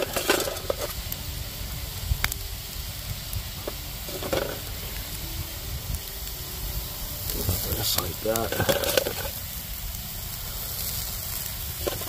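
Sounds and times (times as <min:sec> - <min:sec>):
handling noise: 0:00.0 - 0:01.1, 0:03.5 - 0:09.6
clams sizzling in a pan: 0:00.0 - 0:12.0.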